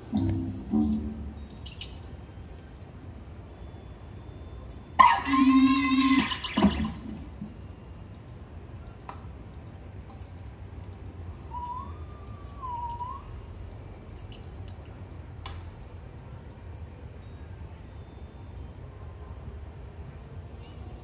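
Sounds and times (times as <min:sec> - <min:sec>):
wavering whistle-like tone: 0:00.0 - 0:02.8, 0:11.2 - 0:13.6
high chiming tones: 0:00.0 - 0:18.9.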